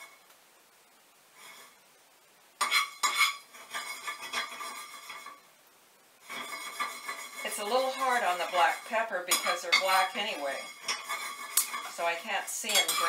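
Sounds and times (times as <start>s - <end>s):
peppercorns rattling in pan: 2.6s - 5.4s, 6.2s - 13.0s
spoon clanking against pan: 2.6s - 5.4s, 6.3s - 12.0s, 12.6s - 13.0s.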